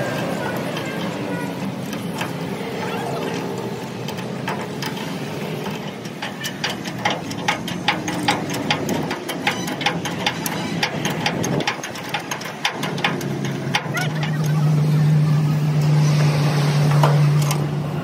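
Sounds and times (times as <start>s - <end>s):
engine running: 0.0s - 18.0s
sharp irregular clicks and knocks: 3.4s - 14.9s.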